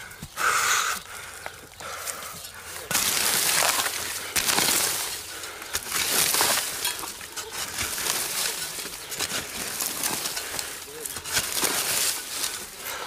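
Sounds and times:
dry stalks rustling and crackling: 0.0s - 13.0s.

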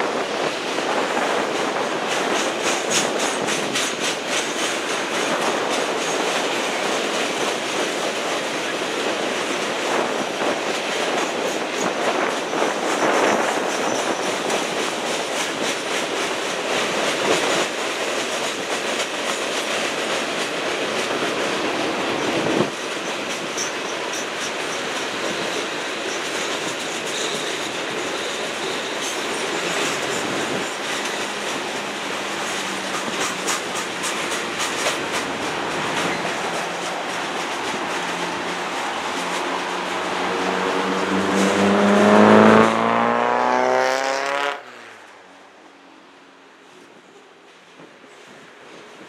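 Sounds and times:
wheels clicking over rail joints: 0.0s - 41.8s
freight train rumble: 0.0s - 43.1s.

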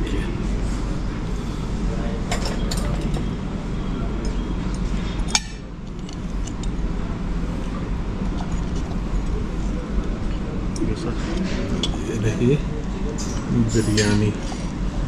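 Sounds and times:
steady low hum: 0.0s - 15.0s
sharp clink: 13.2s - 14.4s.

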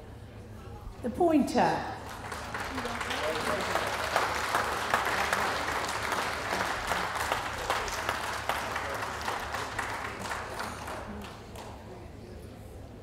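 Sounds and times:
audience applauding: 2.0s - 12.0s.

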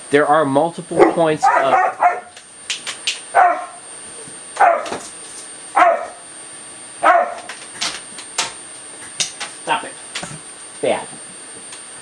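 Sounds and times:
dog barking: 1.0s - 2.4s, 3.3s - 3.8s, 4.6s - 5.0s, 5.8s - 6.2s, 7.0s - 7.5s.

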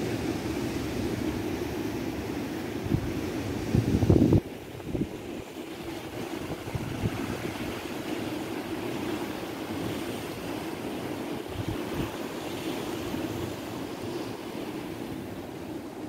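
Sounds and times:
surf washing on rocky shore: 0.0s - 16.0s
wind buffeting microphone: 2.7s - 14.0s.

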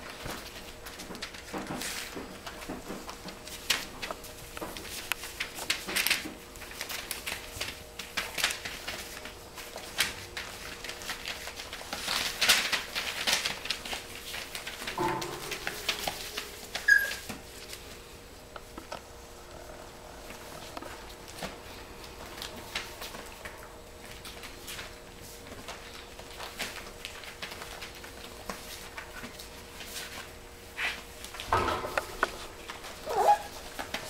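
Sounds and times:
puppy paws scrabbling on paper: 0.0s - 19.1s, 20.2s - 34.0s
puppy squeaking: 16.8s - 17.3s, 33.0s - 33.5s.

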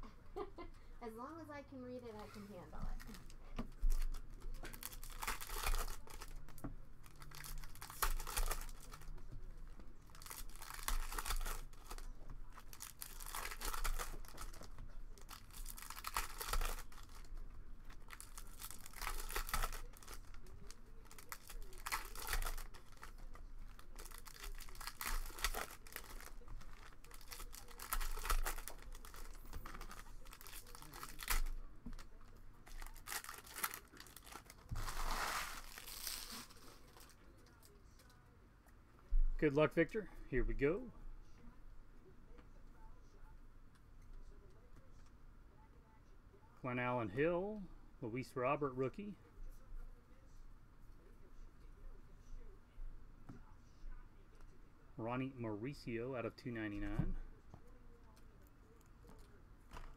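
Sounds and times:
cards rustling: 3.0s - 9.3s, 10.1s - 32.1s, 32.7s - 38.1s
foil wrapper tearing and crinkling: 3.9s - 9.3s, 10.1s - 37.7s.

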